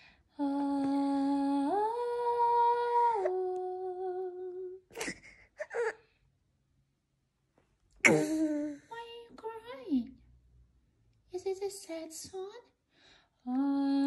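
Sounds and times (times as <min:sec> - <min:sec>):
woman humming a sad tune: 0:00.4 - 0:04.9, 0:13.5 - 0:14.0
baby whimpering: 0:05.0 - 0:06.0.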